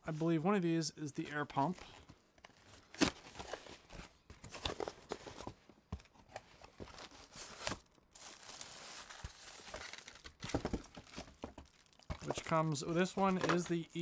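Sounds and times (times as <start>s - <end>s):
packaging tearing and crinkling: 7.0s - 12.7s.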